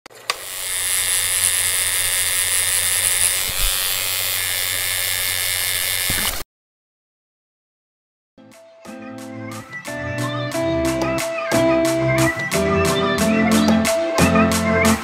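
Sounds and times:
tattoo machine buzzing: 0:00.3 - 0:06.4.

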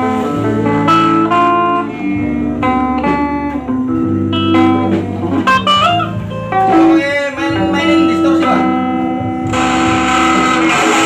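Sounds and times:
electric guitar melody: 0:00.0 - 0:11.0.

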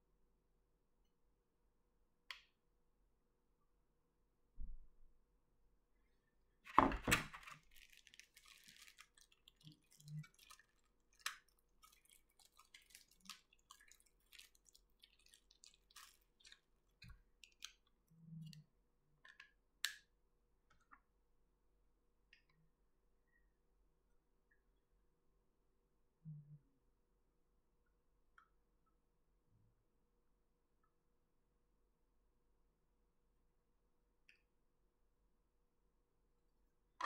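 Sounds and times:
plastic wrapping crinkling: 0:06.7 - 0:17.8
small plastic clicks and taps: 0:19.2 - 0:20.1.

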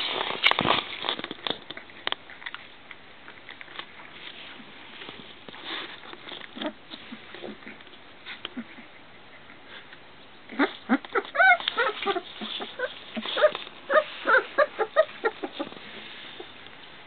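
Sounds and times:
puppy whimpering and yipping: 0:10.5 - 0:15.8.

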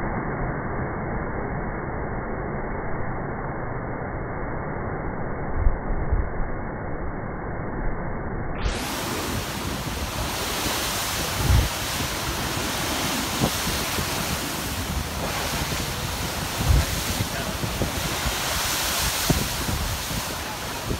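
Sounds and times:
surf crashing on rocks: 0:08.7 - 0:20.9
wind buffeting microphone: 0:08.7 - 0:20.9.

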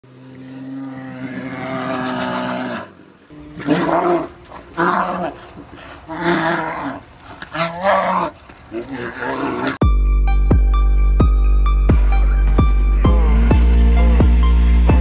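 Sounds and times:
bear roaring: 0:00.1 - 0:09.8.

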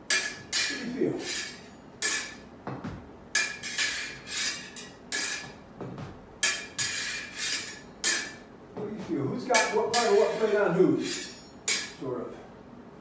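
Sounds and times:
sword blades clinking: 0:00.1 - 0:02.4, 0:03.4 - 0:05.5, 0:06.4 - 0:08.4, 0:09.6 - 0:12.0.

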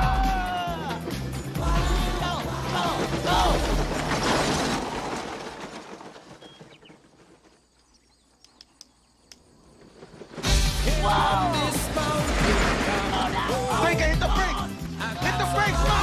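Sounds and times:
whooping voices: 0:00.0 - 0:03.7, 0:10.8 - 0:16.0
faint sharp clicks: 0:08.4 - 0:09.5.

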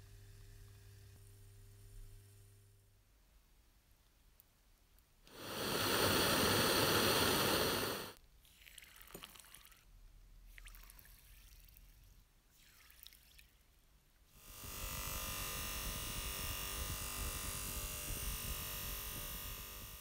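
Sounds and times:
loud rushing hiss: 0:05.3 - 0:08.2
gas bubbles fizzing and crackling: 0:05.3 - 0:09.8.

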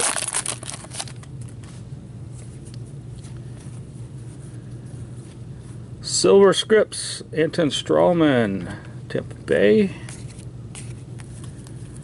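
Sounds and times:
foil wrapper and cards rustling: 0:00.0 - 0:01.7
low background hum: 0:00.0 - 0:12.0.

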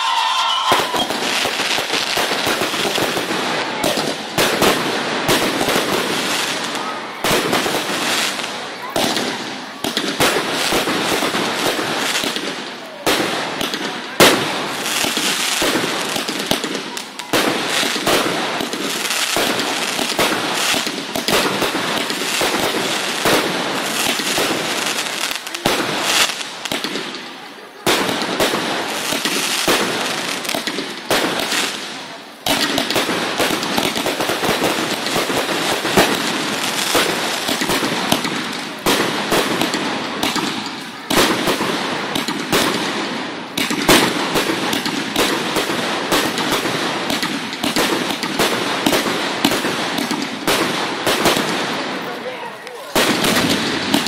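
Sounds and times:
loud firework bang: 0:00.0 - 0:01.6
fireworks crackling and popping: 0:00.0 - 0:54.0.

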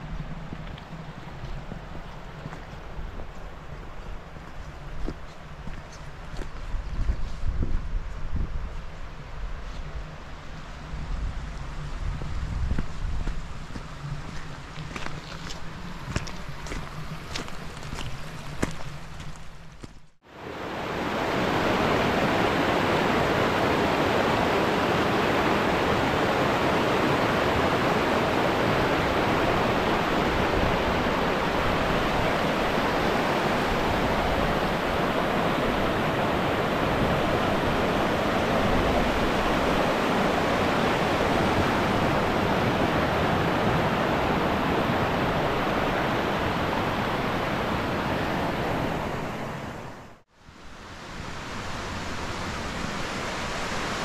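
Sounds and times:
river rushing over boulders: 0:20.2 - 0:54.0.

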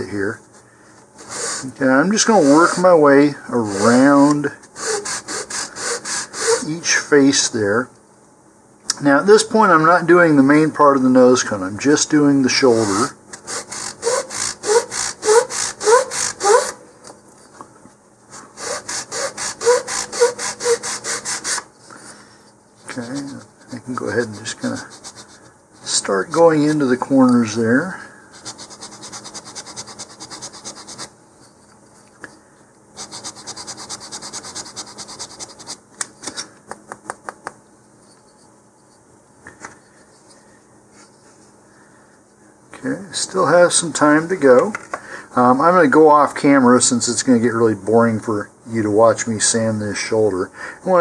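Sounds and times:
sandpaper rasping on wood: 0:01.2 - 0:03.0, 0:03.6 - 0:06.7, 0:12.7 - 0:16.8, 0:18.4 - 0:21.6, 0:24.4 - 0:26.0, 0:28.4 - 0:31.1, 0:33.0 - 0:35.8.

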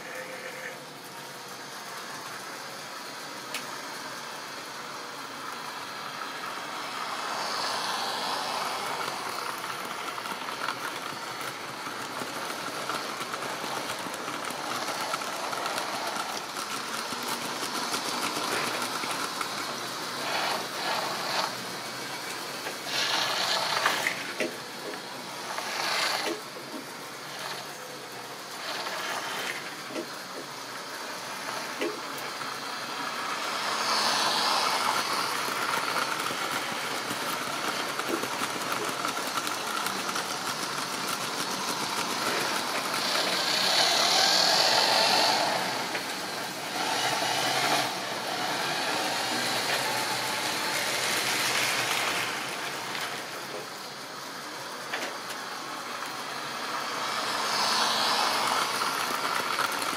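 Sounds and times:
train wheels clicking over track joints: 0:01.2 - 0:59.9
small electric motor humming: 0:20.1 - 0:21.7, 0:40.3 - 0:53.1, 0:56.8 - 0:59.8.

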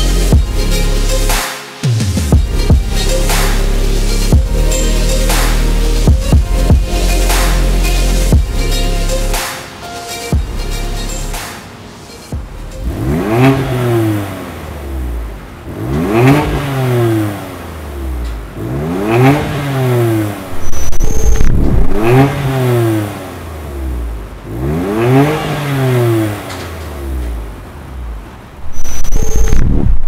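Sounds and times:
car engine revving: 0:00.0 - 0:09.5, 0:12.4 - 0:30.0
short high beep: 0:20.6 - 0:21.6, 0:28.7 - 0:29.8.

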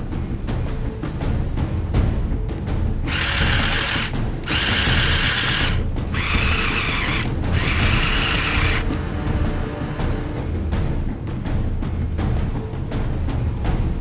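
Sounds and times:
small electric motors whining: 0:03.1 - 0:09.0.

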